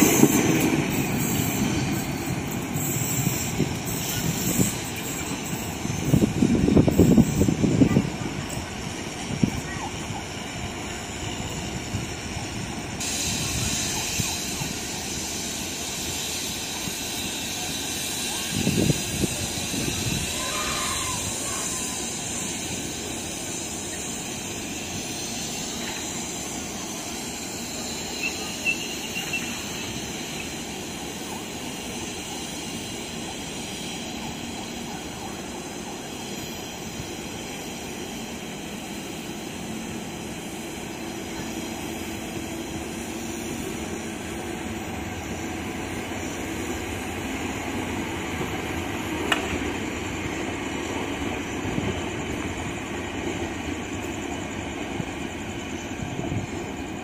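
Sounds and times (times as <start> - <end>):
electric train rumbling: 0.0 - 57.0
faint high squeal: 13.3 - 32.2.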